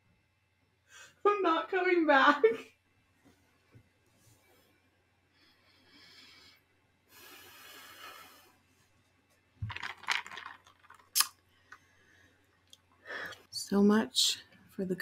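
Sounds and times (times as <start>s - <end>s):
ice cubes rattling in plastic cup: 9.6s - 11.3s.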